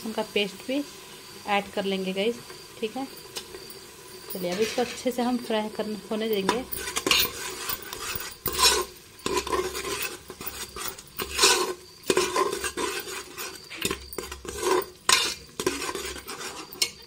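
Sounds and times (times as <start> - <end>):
paste sizzling in oil: 0.0 - 17.0
metal ladle scraping pot: 3.4 - 5.2, 6.3 - 17.0.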